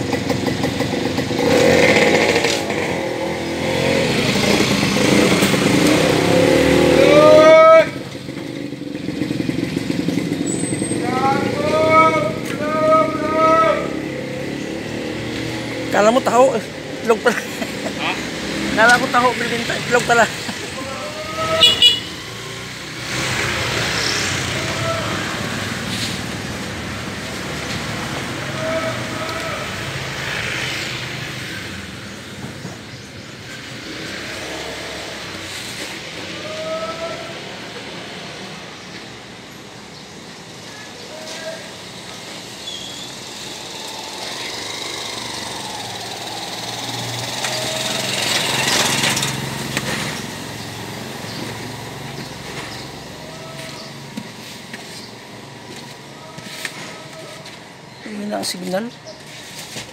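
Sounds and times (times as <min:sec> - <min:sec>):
motor vehicle running: 0:00.0 - 0:59.9
street noise: 0:00.0 - 0:59.9
small engine passing: 0:41.6 - 0:55.5.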